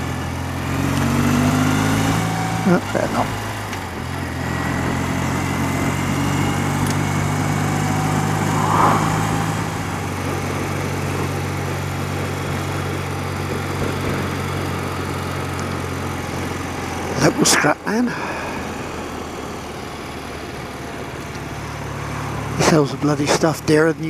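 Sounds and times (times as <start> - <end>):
motorcycle engine running: 0.0 - 24.0
road noise: 0.0 - 24.0
wind noise: 7.4 - 10.8.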